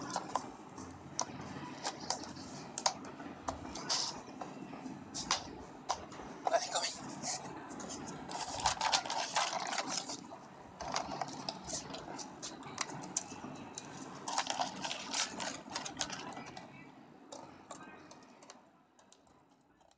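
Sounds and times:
dog crunching dry kibble: 0:08.3 - 0:13.3, 0:14.2 - 0:16.6.

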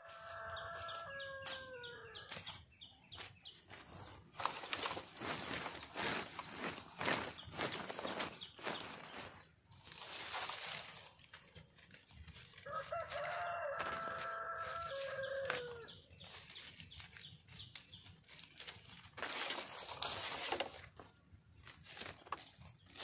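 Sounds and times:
rooster crowing: 0:00.0 - 0:02.3, 0:12.6 - 0:15.9
rustling: 0:03.2 - 0:23.0.

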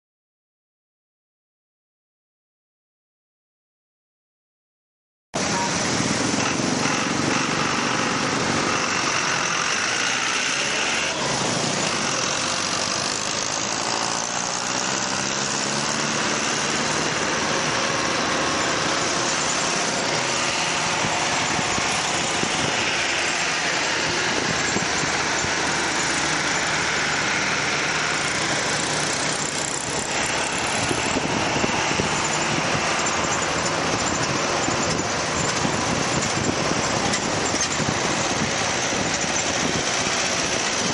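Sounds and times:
wind rush: 0:05.4 - 0:10.1, 0:15.6 - 0:40.9
motorcycle engine running: 0:05.4 - 0:40.9
traffic noise: 0:05.4 - 0:40.9.

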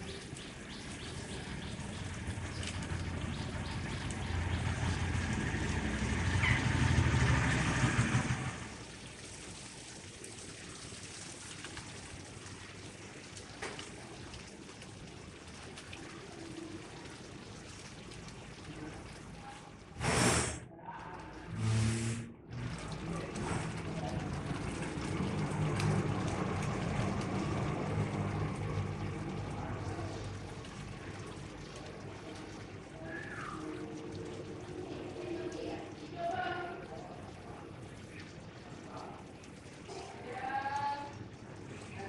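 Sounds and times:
motor vehicle passing: 0:00.0 - 0:09.2, 0:21.3 - 0:36.0.

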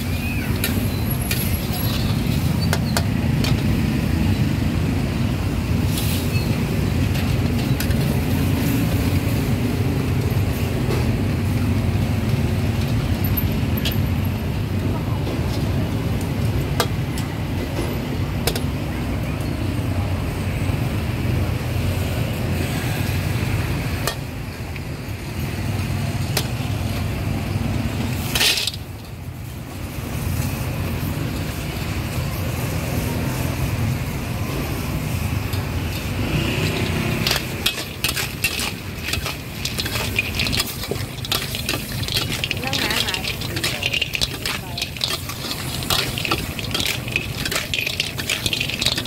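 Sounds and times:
oil sizzling in a wok: 0:00.0 - 0:14.8, 0:21.8 - 0:49.0
ladle scraping and clacking on pan: 0:28.2 - 0:29.1, 0:35.5 - 0:49.0.

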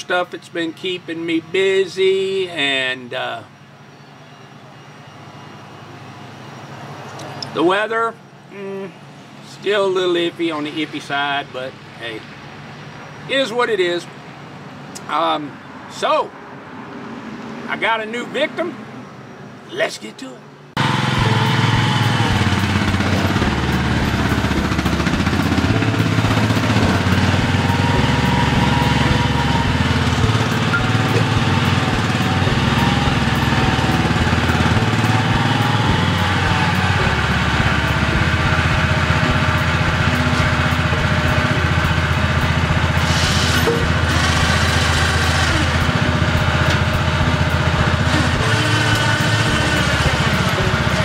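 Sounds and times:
high-pitched whine: 0:20.8 - 0:51.0
tractor engine running: 0:20.8 - 0:51.0.

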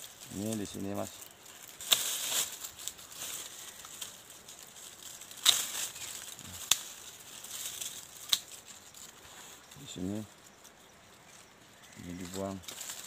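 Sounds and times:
leaves rustling: 0:00.0 - 0:13.0
pruning shears snipping branches: 0:01.7 - 0:03.0, 0:05.3 - 0:07.0.

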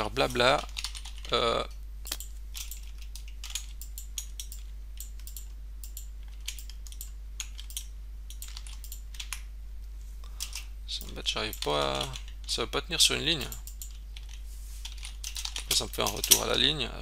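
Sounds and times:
computer keyboard typing: 0:00.6 - 0:01.3, 0:02.1 - 0:09.4, 0:13.4 - 0:16.4.

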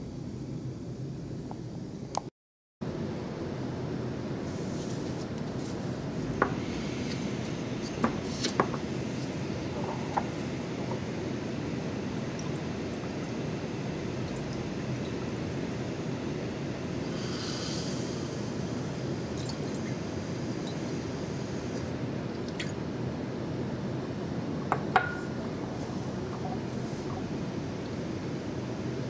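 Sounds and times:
liquid hissing through vacuum filter: 0:16.8 - 0:21.9.

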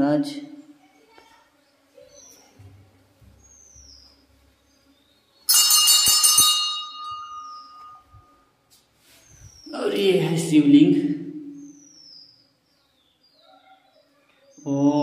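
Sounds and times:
temple bell ringing: 0:05.5 - 0:08.4.

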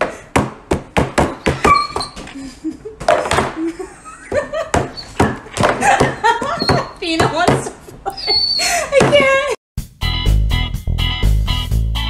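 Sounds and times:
hand and paw slapping table: 0:03.0 - 0:03.7, 0:04.3 - 0:08.0
person's voice: 0:08.9 - 0:09.6.

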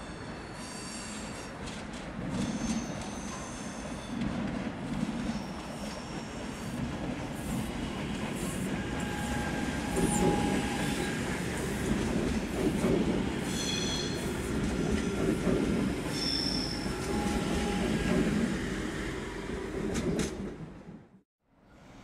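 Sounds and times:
train wheels rumbling on rail: 0:00.2 - 0:21.2
high wheel squeals: 0:08.7 - 0:11.4.

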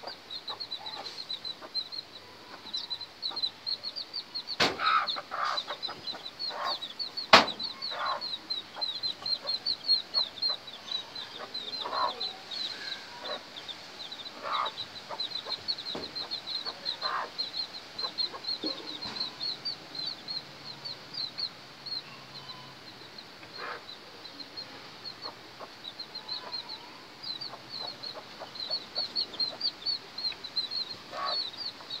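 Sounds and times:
chicks peeping: 0:00.0 - 0:32.0
hen clucking: 0:00.0 - 0:32.0
sharp knock: 0:04.6 - 0:04.9, 0:07.3 - 0:07.6.

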